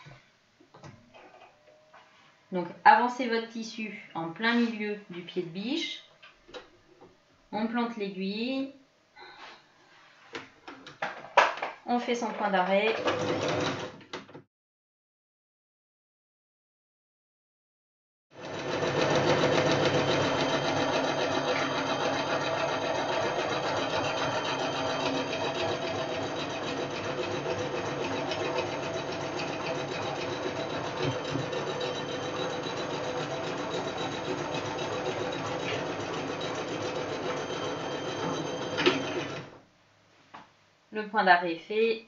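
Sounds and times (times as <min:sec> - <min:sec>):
sewing machine running: 0:13.0 - 0:14.0, 0:18.4 - 0:39.6.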